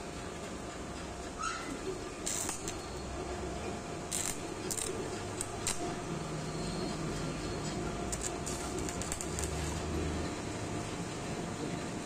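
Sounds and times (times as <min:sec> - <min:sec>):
welding arc crackling: 0:02.2 - 0:03.2, 0:04.0 - 0:06.3, 0:08.0 - 0:10.0.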